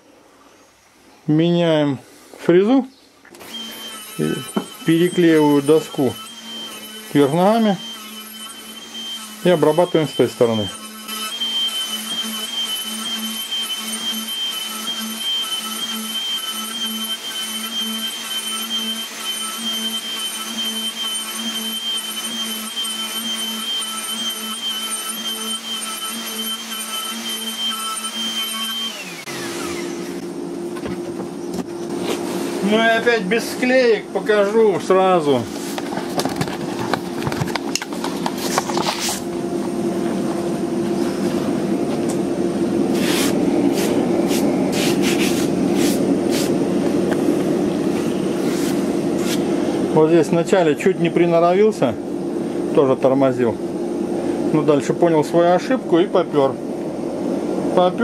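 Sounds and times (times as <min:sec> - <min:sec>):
router cutting wood hum: 0:03.4 - 0:30.9
router motor whine: 0:03.4 - 0:31.9
hand brushing over wood: 0:42.9 - 0:49.5.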